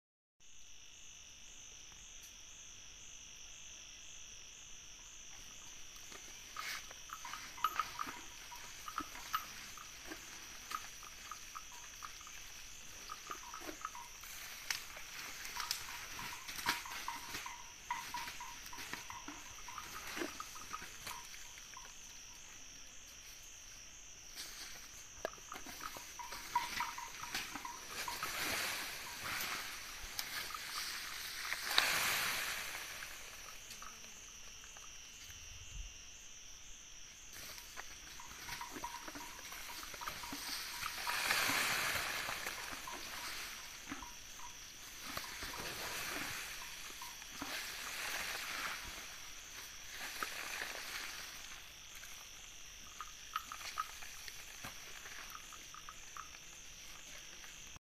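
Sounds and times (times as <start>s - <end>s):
high insect drone: 0.4s - 57.8s
elephants chewing leaves: 6.5s - 21.2s, 25.4s - 32.8s, 38.3s - 48.9s.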